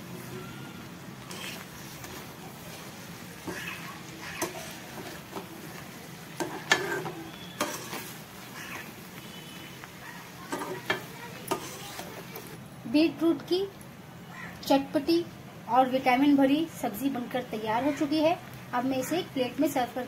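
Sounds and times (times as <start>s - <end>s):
food sizzling: 0.0s - 13.7s
metal spatula scraping a pan: 1.2s - 5.7s, 6.4s - 9.0s, 10.4s - 12.3s.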